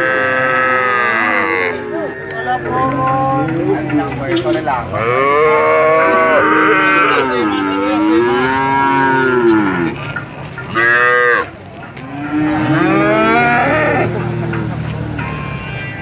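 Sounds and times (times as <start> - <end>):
cattle mooing: 0.0 - 3.9, 4.9 - 16.0.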